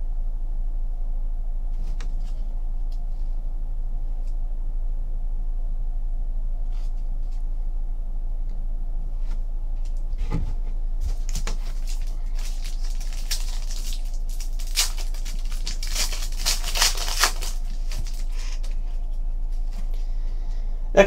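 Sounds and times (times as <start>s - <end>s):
low electrical hum: 0.0s - 21.0s
foil wrapper crinkling and tearing: 11.1s - 19.0s.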